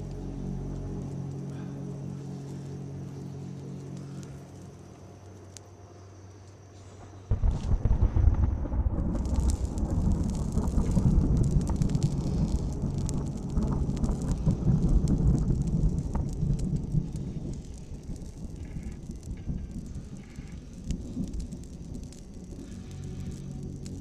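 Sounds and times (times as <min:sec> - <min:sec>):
campfire crackling and popping: 0:00.0 - 0:24.0
rumbling rush of blown air: 0:06.9 - 0:24.0.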